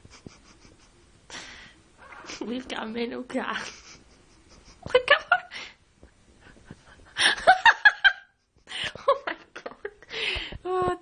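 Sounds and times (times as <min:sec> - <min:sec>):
person chuckling: 0:00.0 - 0:01.6, 0:03.6 - 0:05.8.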